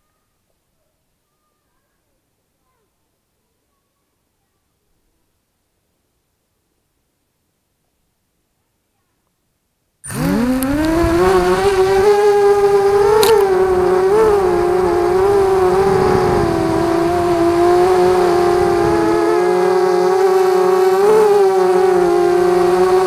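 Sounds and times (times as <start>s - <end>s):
quadcopter motors whining: 10.0s - 23.0s.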